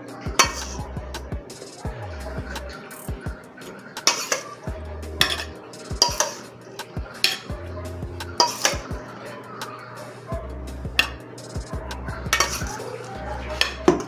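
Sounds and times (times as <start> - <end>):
background music with beat: 0.0 - 14.0
metal spoon clinking on dishes: 5.2 - 7.5, 8.4 - 8.9.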